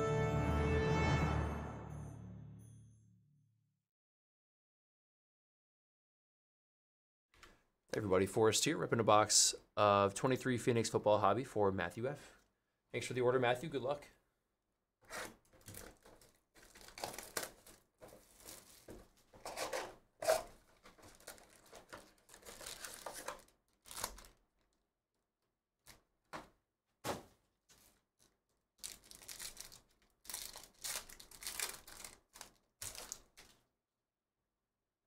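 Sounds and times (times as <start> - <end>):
shrink wrap tearing: 15.1 - 24.8, 27.7 - 33.6
foil packs crinkling: 15.4 - 24.8, 27.7 - 33.6.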